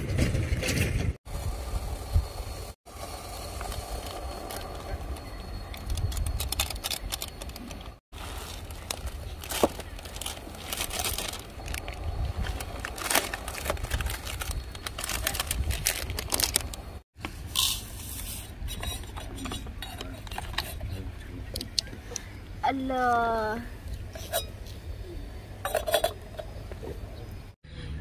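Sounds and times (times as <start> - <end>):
plastic packets crinkling: 5.8 - 16.9.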